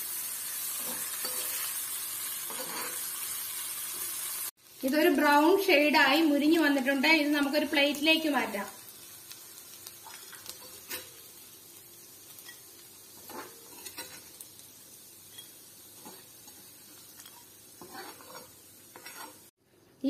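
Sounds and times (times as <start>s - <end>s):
hot oil sizzling: 0.0s - 19.6s
metal spatula scraping iron pan: 0.8s - 1.7s, 2.4s - 3.1s, 13.2s - 14.3s, 15.3s - 19.5s.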